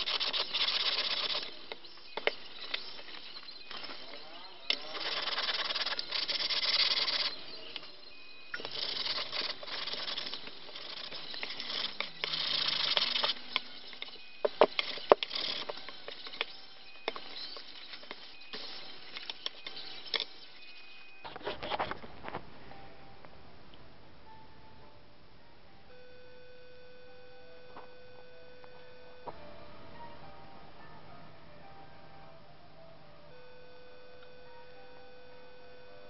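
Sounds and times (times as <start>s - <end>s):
metal plate scrubbed on sandpaper: 0.0s - 1.6s, 4.8s - 7.6s, 8.6s - 13.9s
sharp clicks and knocks: 0.0s - 4.0s, 8.5s - 20.4s.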